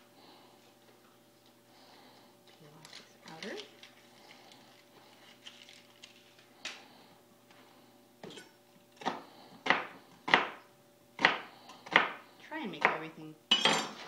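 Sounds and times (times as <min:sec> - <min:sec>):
knife chopping on cutting board: 0:09.0 - 0:10.6, 0:11.2 - 0:12.2.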